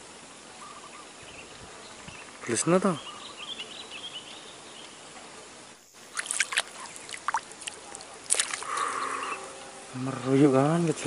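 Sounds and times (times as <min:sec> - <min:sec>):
water splashing and trickling: 0:05.9 - 0:09.1
thin high chirps: 0:05.9 - 0:09.4.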